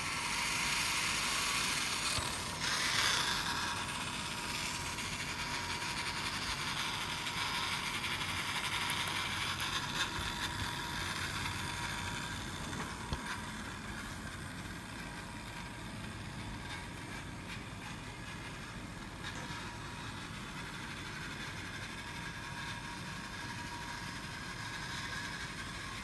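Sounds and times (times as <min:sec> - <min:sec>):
electric motor whine: 0:00.0 - 0:07.1.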